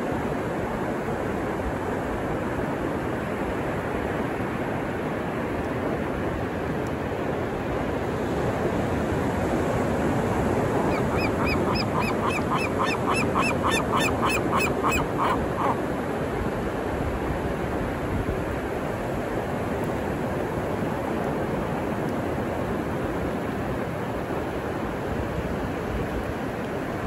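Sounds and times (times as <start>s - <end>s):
ocean surf breaking: 7.5s - 27.0s.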